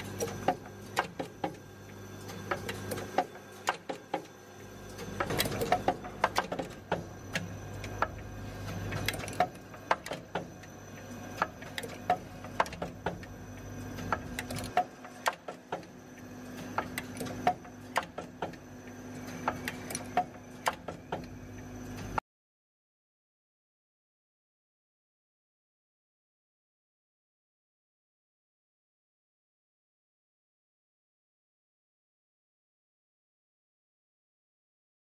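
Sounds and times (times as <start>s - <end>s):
vibratory bowl feeder hum: 0.0s - 22.2s.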